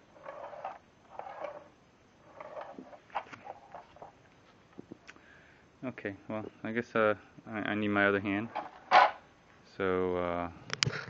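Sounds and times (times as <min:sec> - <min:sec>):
rustling and scraping on saw: 0:00.0 - 0:04.6, 0:08.4 - 0:09.2.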